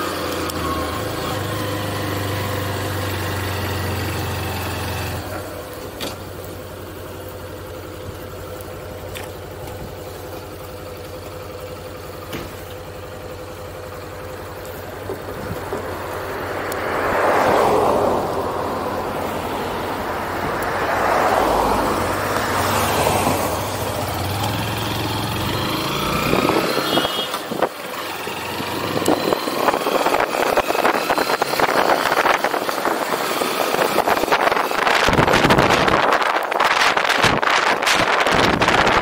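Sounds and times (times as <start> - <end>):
motorcycle engine running: 0.0 - 16.9, 21.9 - 39.0
cars passing: 13.2 - 39.0
wind buffeting microphone: 28.8 - 39.0.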